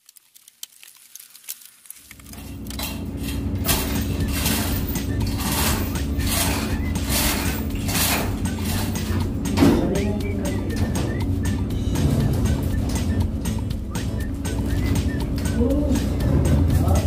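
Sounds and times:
machinery humming: 2.1s - 17.0s
metal tools clanking: 2.3s - 10.0s.

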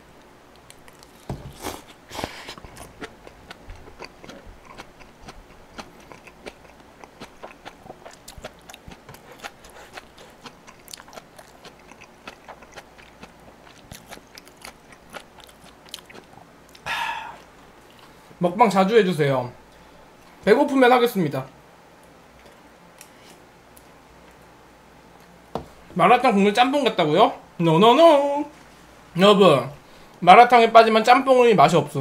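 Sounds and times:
mushrooms being chewed: 0.5s - 18.2s.

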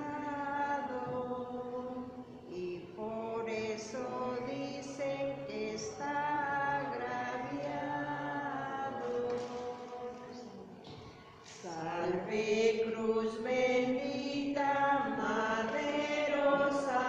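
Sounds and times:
voices chanting: 11.5s - 17.0s.

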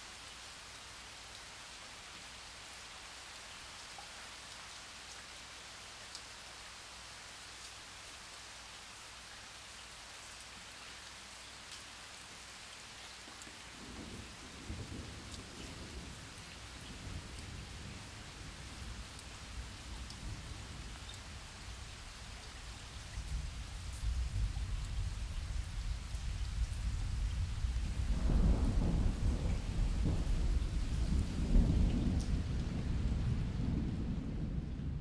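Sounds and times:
steady rain: 0.0s - 35.0s
rain drop ticks: 6.1s - 6.3s, 13.2s - 18.3s, 19.0s - 32.8s
low thunder rumble: 23.2s - 35.0s.

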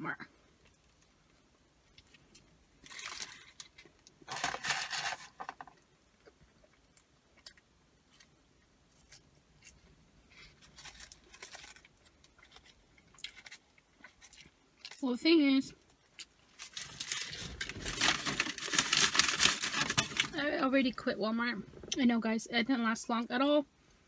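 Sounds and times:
paper wrapper crinkling: 2.8s - 5.6s, 10.6s - 13.6s, 16.6s - 20.4s.

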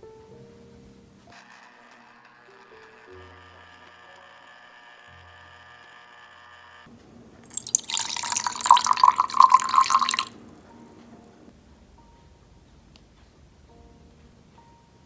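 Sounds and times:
juice pouring into a jug: 7.4s - 10.4s.

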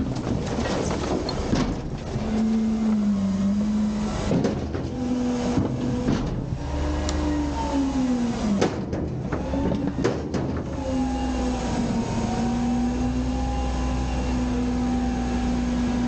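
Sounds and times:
trash and metal clattering: 0.0s - 7.4s, 8.4s - 11.9s
truck engine revving: 0.2s - 16.0s.

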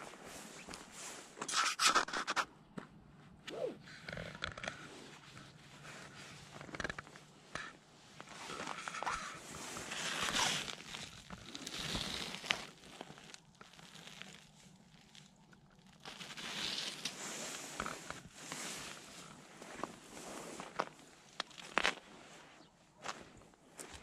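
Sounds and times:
rustling and crinkling: 0.0s - 24.0s
footsteps on gravel: 23.0s - 24.0s.

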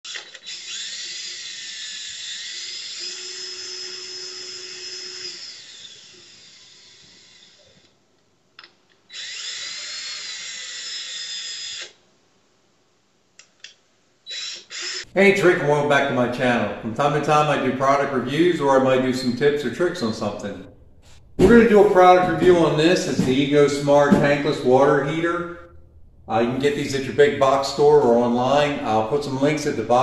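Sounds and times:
high-pitched motor whine: 0.5s - 7.6s.

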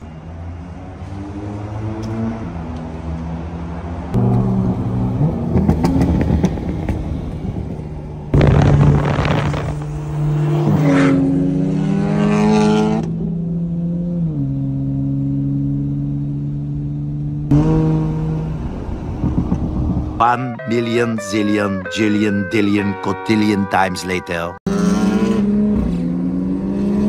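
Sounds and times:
car engines accelerating hard: 0.0s - 20.2s, 24.7s - 27.0s
rush of wind: 5.4s - 10.8s, 17.9s - 20.3s.

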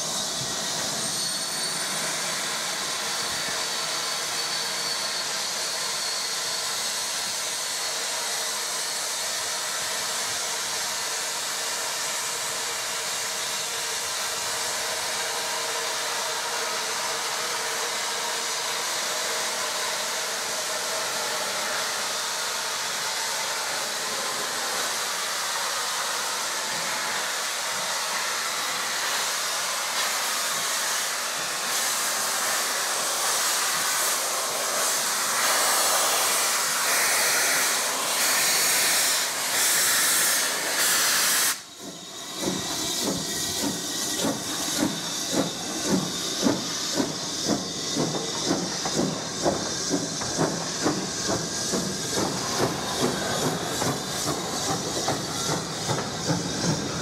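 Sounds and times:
steam locomotive hissing: 0.0s - 57.0s
locomotive exhaust chuffs: 41.7s - 57.0s.

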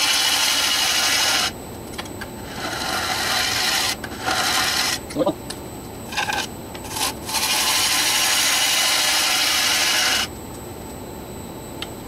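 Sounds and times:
gouge cutting wood on lathe: 0.0s - 1.5s, 2.5s - 5.0s, 6.9s - 10.3s
lathe running: 0.0s - 1.6s, 2.4s - 5.1s, 6.1s - 10.3s.

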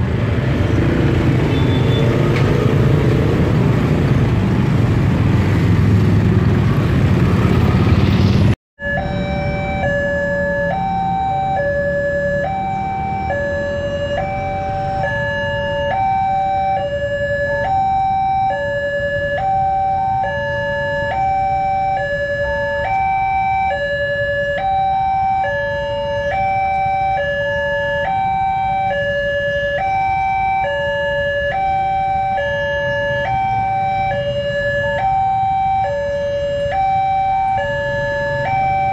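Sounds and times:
low traffic rumble: 0.0s - 38.9s
motorcycle traffic: 0.0s - 38.9s
level-crossing alarm: 8.8s - 38.9s.

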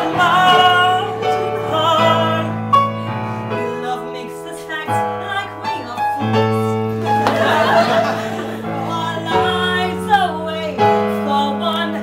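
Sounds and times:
electric keyboard chords: 5.0s - 11.8s
audience laughter: 7.0s - 9.2s.

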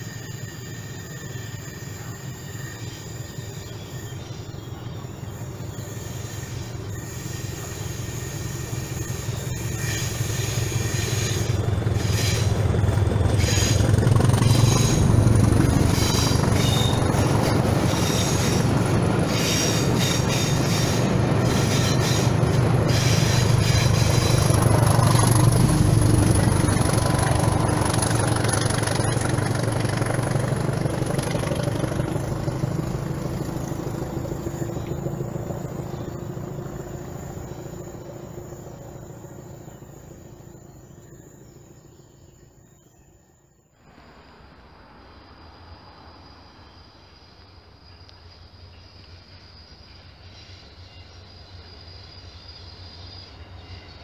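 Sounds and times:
wheels clicking over rail joints: 9.3s - 40.5s.

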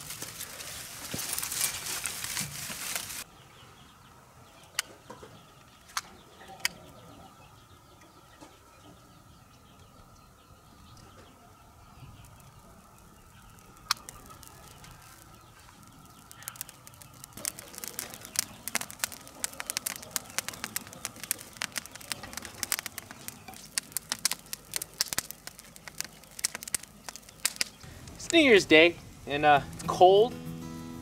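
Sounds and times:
fire crackling and popping: 0.0s - 3.3s, 10.7s - 30.2s.

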